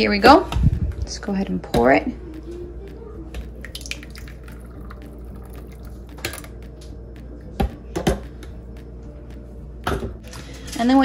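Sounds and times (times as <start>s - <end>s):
steady low hum: 0.0s - 11.0s
thick soup pouring into bowl: 3.7s - 6.0s.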